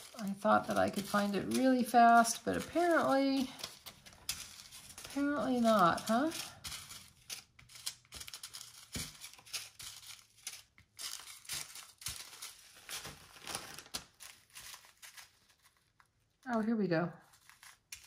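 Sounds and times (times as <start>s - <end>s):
plastic bags crinkling: 11.1s - 16.4s.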